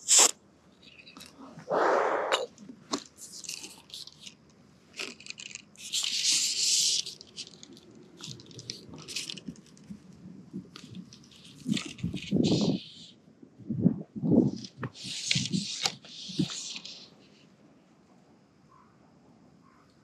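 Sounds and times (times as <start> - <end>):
fly line rustling and clicking: 2.9 - 13.0, 14.5 - 17.1
fly line hiss: 14.6 - 17.4.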